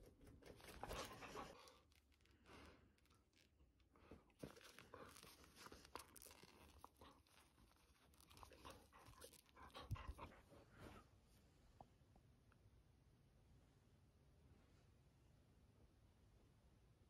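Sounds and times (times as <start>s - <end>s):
crackling and rustling yarn: 0.0s - 11.4s.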